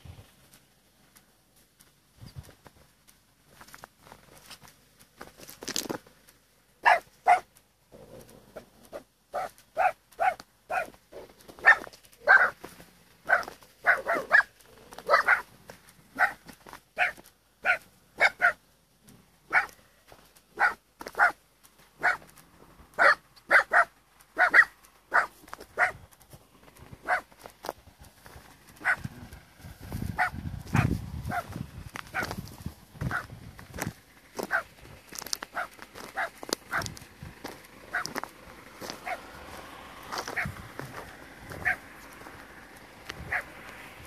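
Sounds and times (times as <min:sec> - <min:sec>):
dog barking: 0:06.8 - 0:07.5, 0:08.9 - 0:11.0, 0:11.6 - 0:12.6, 0:13.2 - 0:15.5, 0:16.1 - 0:16.4, 0:17.0 - 0:18.6, 0:19.5 - 0:19.8, 0:20.6 - 0:21.4, 0:22.0 - 0:22.3, 0:23.0 - 0:26.0, 0:27.0 - 0:27.3, 0:28.8 - 0:29.1, 0:30.2 - 0:31.5, 0:32.1 - 0:32.4, 0:33.1 - 0:33.3, 0:34.4 - 0:34.7, 0:35.5 - 0:36.9, 0:37.9 - 0:38.2, 0:39.0 - 0:39.3, 0:40.3 - 0:40.6, 0:41.6 - 0:41.9, 0:43.3 - 0:43.6.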